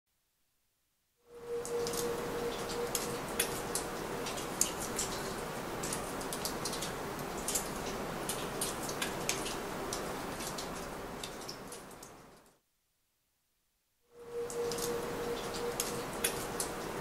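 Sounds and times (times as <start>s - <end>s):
steady hiss: 14.1s - 17.0s.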